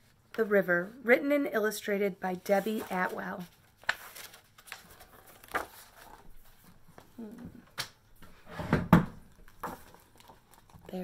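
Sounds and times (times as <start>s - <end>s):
paper rustling: 2.3s - 7.2s, 9.3s - 11.0s.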